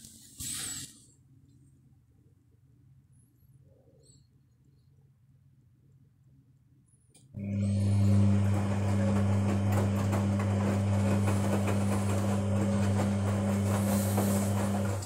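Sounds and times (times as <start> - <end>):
washing machine running: 7.3 - 15.0.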